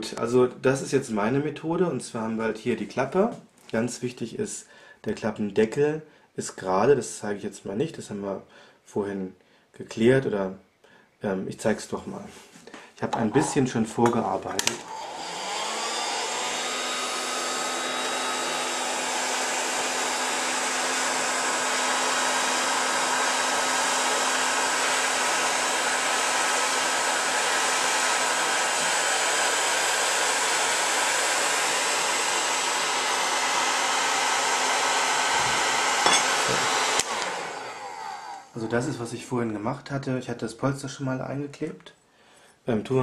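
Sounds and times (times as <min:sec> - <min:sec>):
hot-air blower running: 0:13.1 - 0:38.9.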